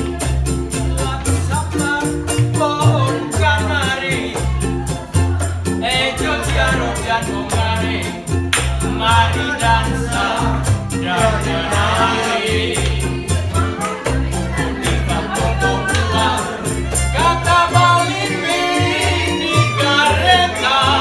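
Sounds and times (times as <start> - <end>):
plucked double bass: 0.0 - 21.0
ukuleles strumming: 0.0 - 21.0
person singing: 9.0 - 21.0.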